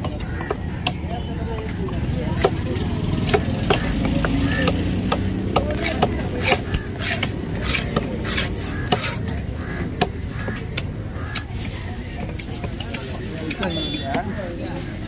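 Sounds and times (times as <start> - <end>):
knife chopping fish on wood: 3.2 - 9.3.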